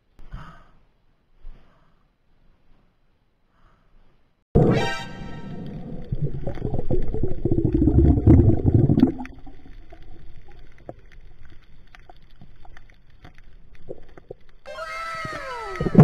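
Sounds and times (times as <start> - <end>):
underwater rumbling and gurgling: 5.4 - 14.7
reef clicks and crackles: 5.4 - 16.0.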